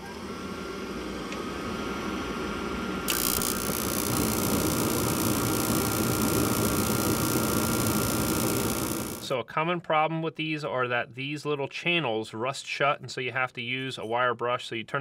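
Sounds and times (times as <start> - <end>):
furnace fan motor humming: 0.0 - 9.3
gas burners igniting: 0.0 - 9.3.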